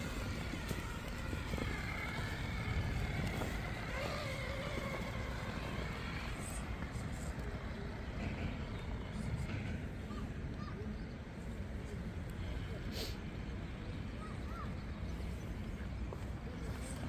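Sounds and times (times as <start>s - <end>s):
electric motor whining: 0.0s - 7.5s
steady low rumble: 0.0s - 17.0s.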